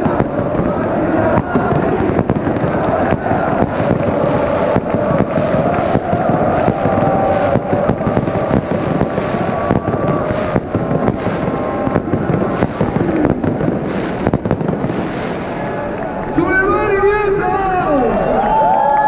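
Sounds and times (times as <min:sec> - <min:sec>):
crowd noise: 0:00.0 - 0:19.0
fireworks crackling and banging: 0:00.0 - 0:19.0.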